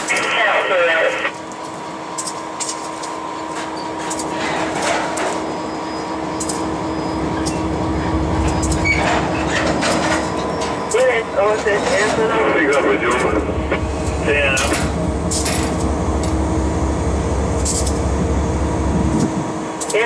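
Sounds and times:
locomotive cab hum: 0.0 - 20.0
low rumble: 6.3 - 19.6
sharp clicks and clanks: 6.4 - 6.7, 8.4 - 13.5.

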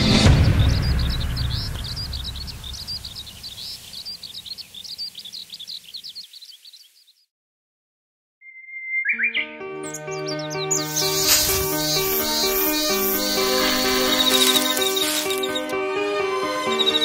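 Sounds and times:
music: 0.0 - 3.0, 9.1 - 17.0
birds twittering: 0.0 - 7.3, 8.5 - 17.0.

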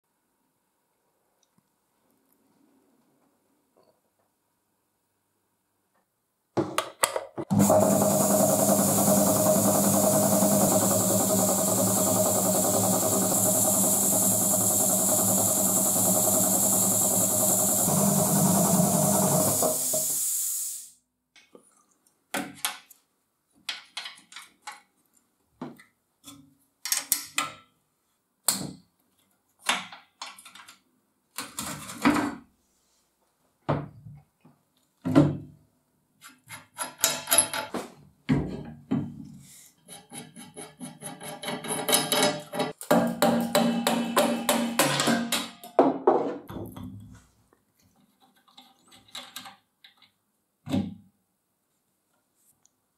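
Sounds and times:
air compressor humming: 7.5 - 20.9.

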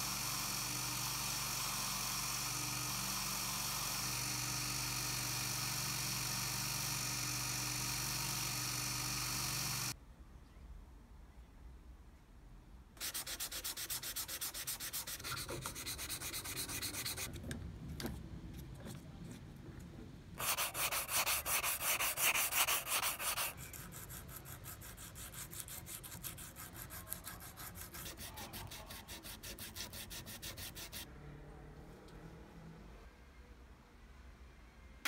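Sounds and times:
sandpaper rubbing on wood: 13.0 - 17.3, 20.4 - 31.1.

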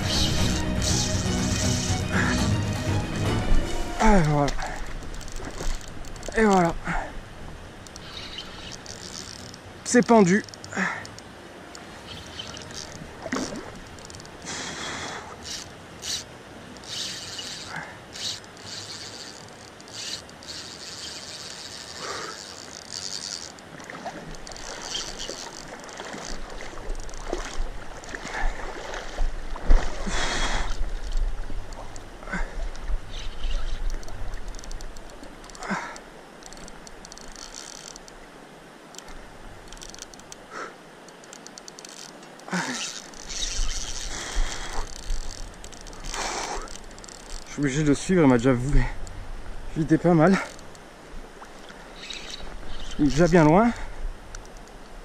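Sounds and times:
fishing reel drag buzzing: 0.0 - 2.4, 4.1 - 7.0, 7.8 - 11.2, 11.8 - 28.2, 33.1 - 35.8, 36.4 - 38.1, 39.0 - 40.3, 41.1 - 47.9, 51.5 - 54.7.

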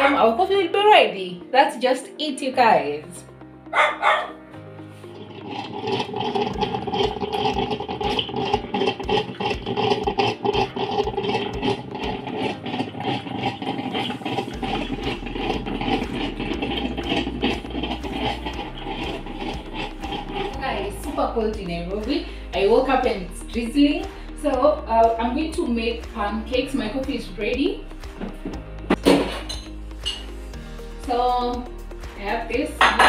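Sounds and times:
coffee maker brewing: 5.0 - 27.2, 27.8 - 31.6, 32.3 - 33.0
crackles and gurgles: 5.1 - 21.4.

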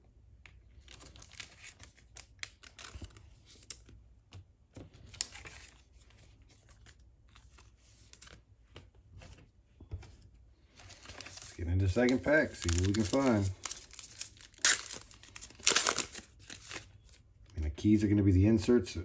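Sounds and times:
foil wrapper crinkling: 10.8 - 17.2.

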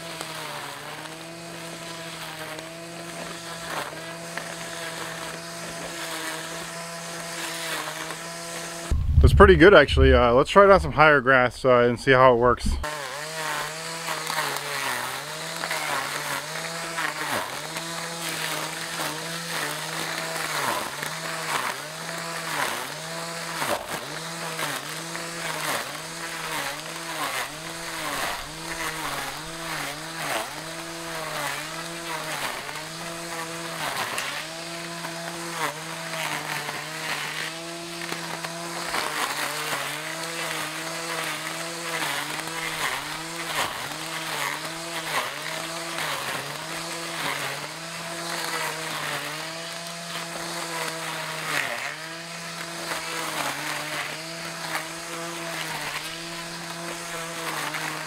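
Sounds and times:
grass trimmer motor humming: 0.0 - 9.4, 12.6 - 58.0
blades swishing through grass: 24.6 - 58.0.

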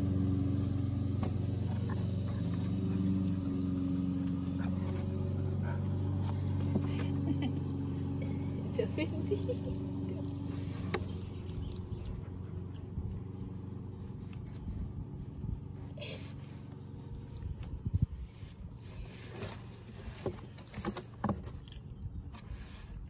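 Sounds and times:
low engine-like hum: 0.0 - 23.0
dog sniffing and scuffing: 1.1 - 7.3, 10.4 - 21.6.

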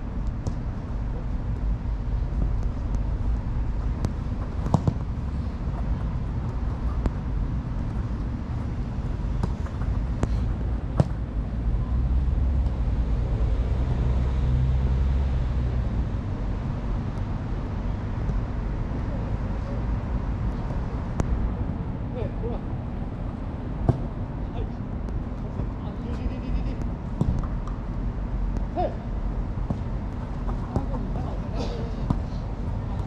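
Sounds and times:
steady low rumble: 0.0 - 14.3
ball being kicked thuds: 3.8 - 6.0, 9.3 - 11.3, 23.8 - 24.2, 27.2 - 27.8, 29.6 - 31.1.

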